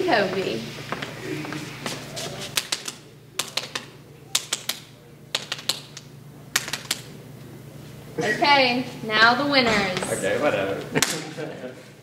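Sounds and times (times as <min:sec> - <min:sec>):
fists slapping open palms: 0:02.5 - 0:07.1.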